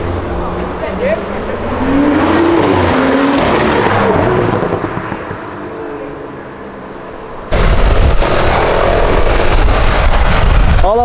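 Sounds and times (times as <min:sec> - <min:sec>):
car engine pulling away: 0:00.0 - 0:06.9, 0:07.5 - 0:10.8
low rumble of traffic: 0:00.0 - 0:11.0
wind noise: 0:07.5 - 0:11.0.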